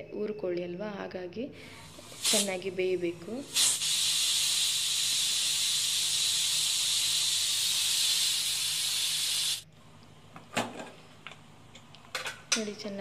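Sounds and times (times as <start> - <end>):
pressure cooker steam hissing: 1.8 - 2.7, 3.3 - 9.6.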